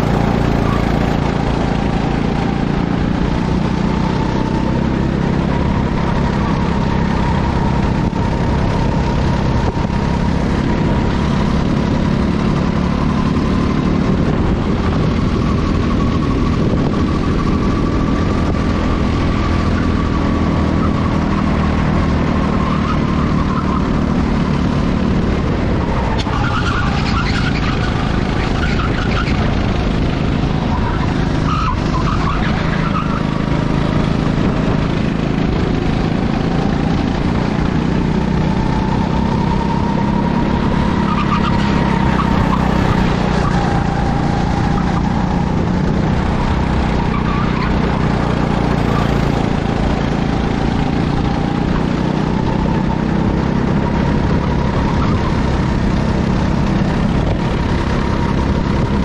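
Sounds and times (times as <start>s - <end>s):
go-kart engines racing: 0.0s - 59.0s.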